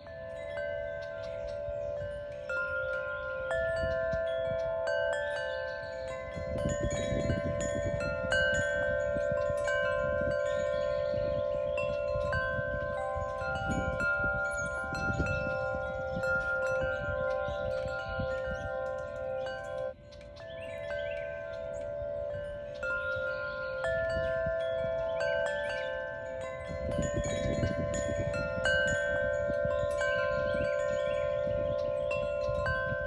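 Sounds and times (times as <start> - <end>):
wind chimes ringing: 0.0 - 33.0
gusty wind rumbling: 6.2 - 18.9, 26.3 - 33.0.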